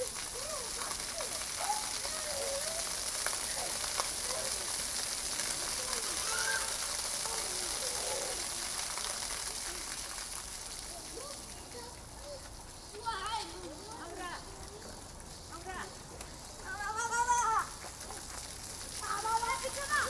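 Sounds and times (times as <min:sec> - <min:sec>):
children shouting: 0:00.0 - 0:10.0, 0:16.6 - 0:18.4, 0:19.0 - 0:20.0
fountain jets splashing: 0:00.0 - 0:20.0.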